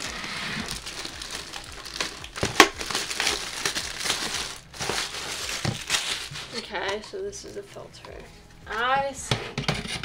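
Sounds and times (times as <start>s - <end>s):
plastic wrapping crinkling: 0.0s - 7.8s.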